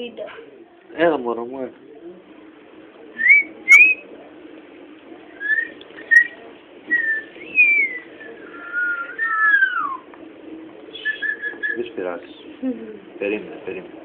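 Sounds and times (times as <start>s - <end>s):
person whistling: 7.0s - 10.0s.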